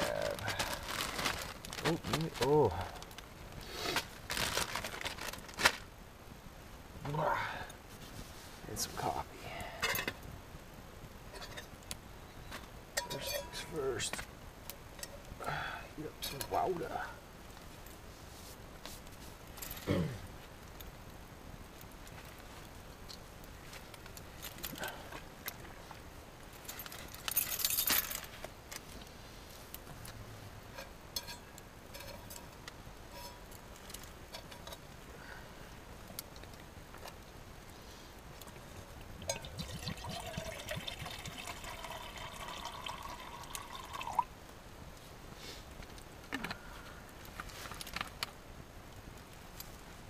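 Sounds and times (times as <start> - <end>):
light clinks of gear: 26.6 - 28.4
water pouring into container: 39.2 - 44.3.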